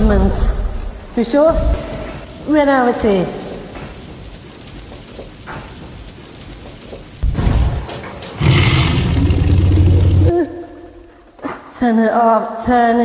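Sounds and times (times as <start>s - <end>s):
low dinosaur growl: 8.4s - 10.5s.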